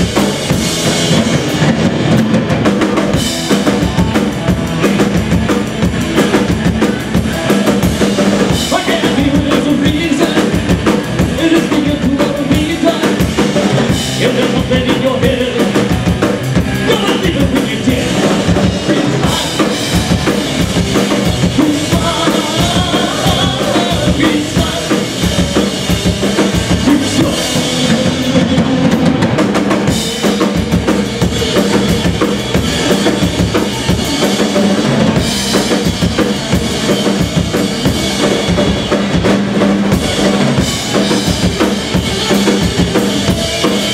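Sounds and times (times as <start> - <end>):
bass guitar: 0.0 - 43.9
drum kit beat: 0.0 - 43.9
electric guitar: 0.0 - 43.9
man singing: 8.5 - 16.0, 16.8 - 20.4, 21.0 - 29.2, 42.2 - 43.9.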